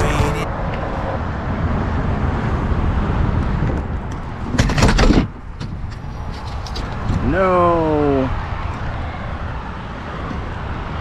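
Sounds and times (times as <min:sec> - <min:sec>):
road and engine rumble: 0:00.0 - 0:11.0.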